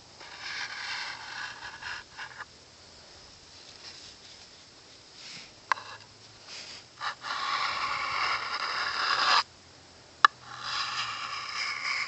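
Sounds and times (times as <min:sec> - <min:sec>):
sharpening stone scraping knife blade: 0:07.0 - 0:09.4, 0:10.4 - 0:12.0.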